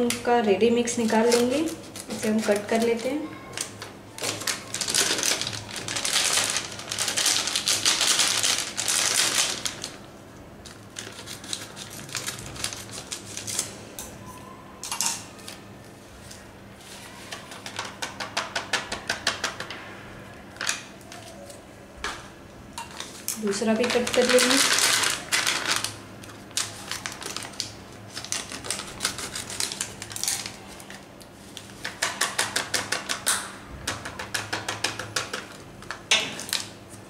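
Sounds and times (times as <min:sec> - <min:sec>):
plastic packet crinkling: 0:01.0 - 0:13.8, 0:23.2 - 0:31.8.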